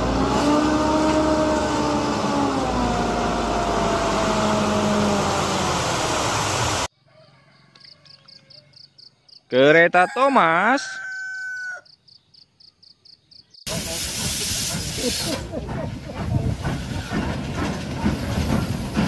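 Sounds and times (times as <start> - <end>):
truck engine revving: 0.0 - 6.9.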